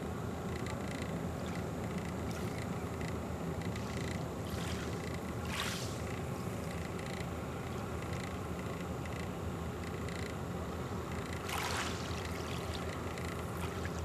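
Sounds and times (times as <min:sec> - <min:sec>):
ripples lapping at shoreline: 0:03.7 - 0:06.6, 0:11.3 - 0:14.0
water swishing: 0:11.4 - 0:14.0.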